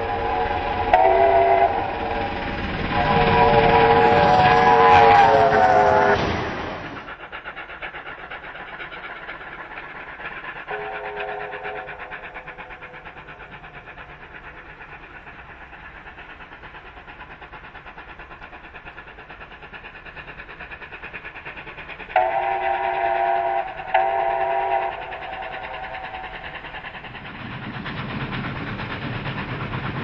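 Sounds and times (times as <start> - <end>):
steam locomotive chuffing: 0.0 - 30.0
steam whistle blasts: 0.1 - 1.9, 3.0 - 6.3, 10.7 - 11.9, 22.2 - 25.1.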